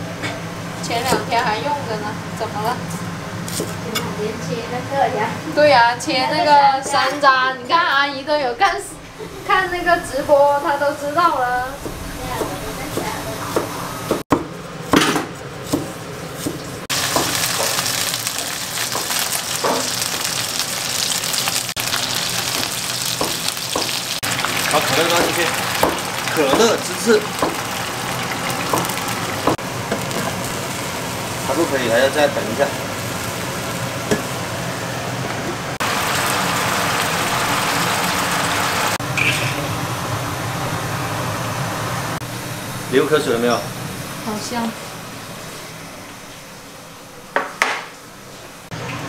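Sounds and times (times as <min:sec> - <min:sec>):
chicken sizzling in hot oil: 0:16.7 - 0:34.9, 0:35.8 - 0:40.4
chopsticks knocking on pan: 0:25.2 - 0:26.8, 0:27.4 - 0:27.6.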